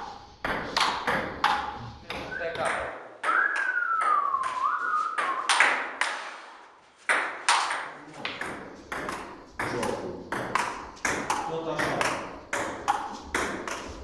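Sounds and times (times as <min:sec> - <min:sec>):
falling whistle-like tone: 0:03.2 - 0:05.6.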